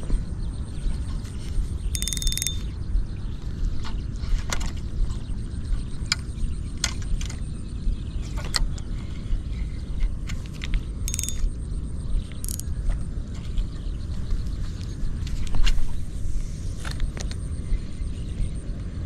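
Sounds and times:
steady low rumble: 0:00.0 - 0:19.0
fishing reel clicking: 0:02.0 - 0:02.7, 0:11.1 - 0:11.5, 0:12.4 - 0:12.7.

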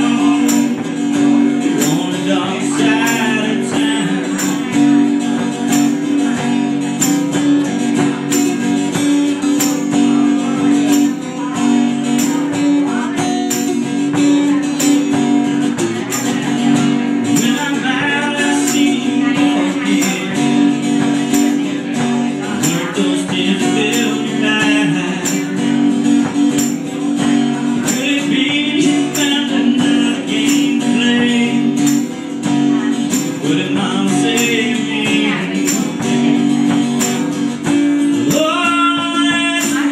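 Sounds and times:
acoustic guitars strummed and picked: 0:00.0 - 0:39.9.

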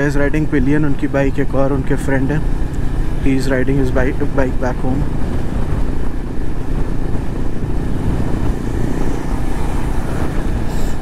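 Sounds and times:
low wind rumble: 0:00.0 - 0:11.0
motorcycle engine drone: 0:00.0 - 0:11.0.

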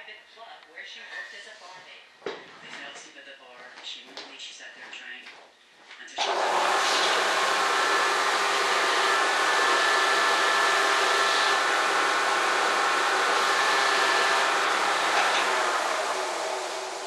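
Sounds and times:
electric blower motor whining: 0:06.2 - 0:17.0.

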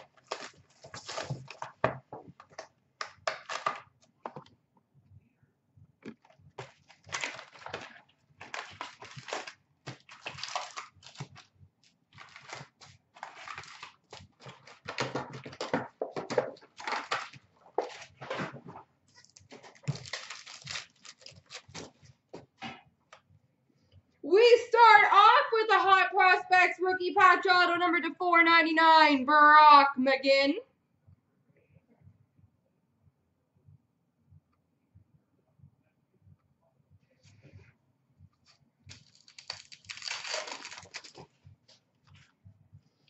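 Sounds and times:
foil card packs crinkling: 0:00.0 - 0:02.0, 0:06.6 - 0:11.5, 0:12.2 - 0:18.5, 0:19.2 - 0:22.0, 0:38.9 - 0:41.4.

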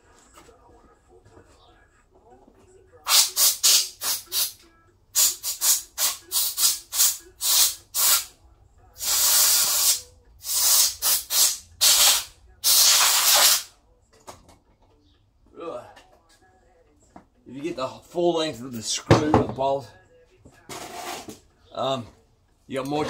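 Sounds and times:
air blow gun hissing blasts: 0:09.0 - 0:13.7.

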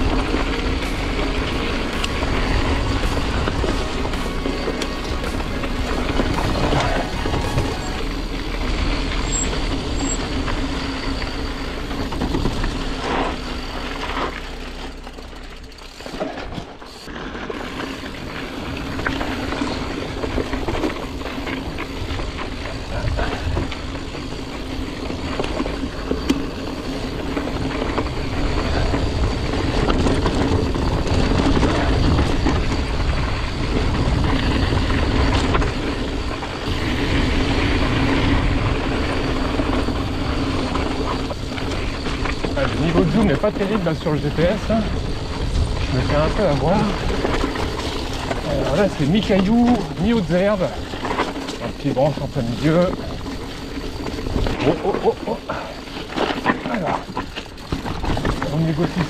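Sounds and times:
bike tyres rumbling over dirt: 0:00.0 - 0:59.0
wind noise on microphone: 0:17.9 - 0:43.6, 0:44.2 - 0:54.9.

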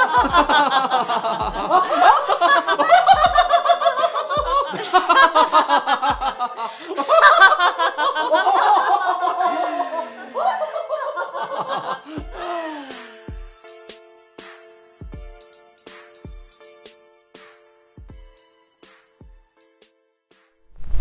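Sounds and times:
background music with drum beat: 0:00.0 - 0:06.5, 0:12.2 - 0:20.5
man and woman laughing: 0:00.0 - 0:12.9.

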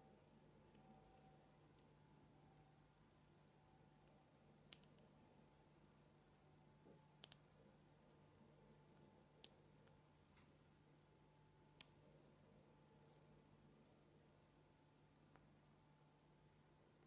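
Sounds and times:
magnet balls clicking together: 0:04.7 - 0:05.0.

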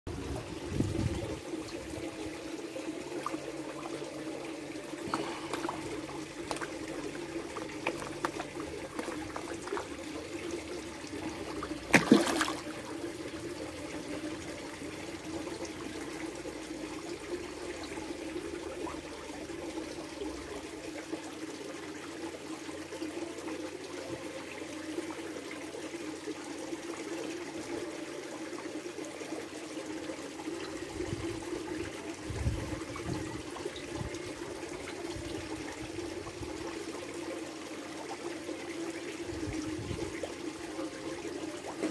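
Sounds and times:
water trickling and lapping: 0:00.2 - 0:20.4, 0:30.5 - 0:41.9
water splash: 0:11.4 - 0:12.9.

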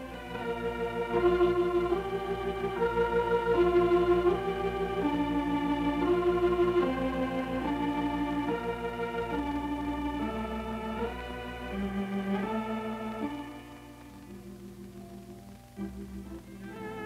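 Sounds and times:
organ playing slow melody: 0:00.0 - 0:17.0.

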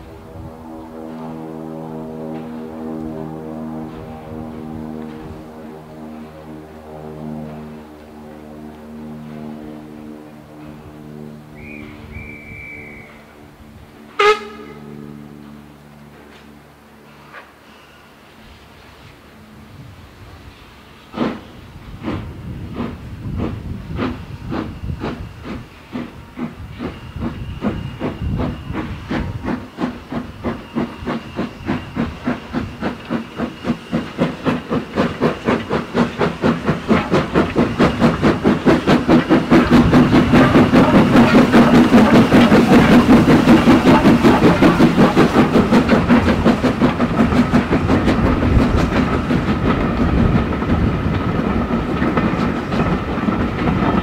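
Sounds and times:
steam locomotive exhaust beats: 0:00.0 - 0:54.0
train wheels clattering on rails: 0:20.8 - 0:54.0.

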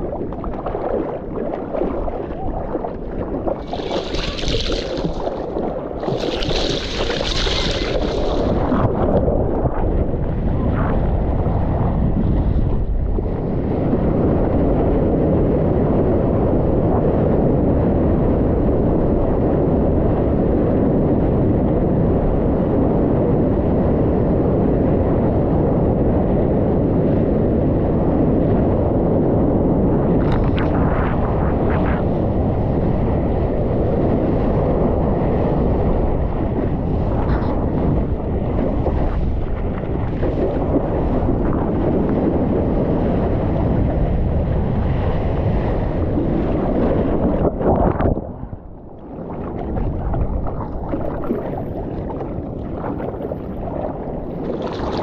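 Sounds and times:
wind and rushing water on microphone: 0:00.0 - 0:55.0
sharp water splashes: 0:03.5 - 0:08.8, 0:54.2 - 0:55.0.

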